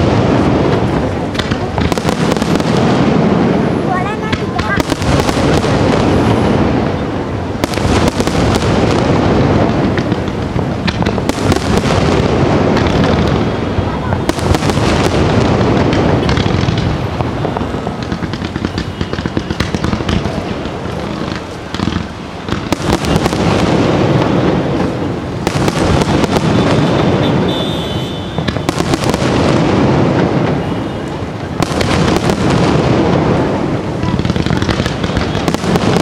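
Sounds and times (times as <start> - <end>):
fireworks bangs and crackling: 0.0 - 36.0.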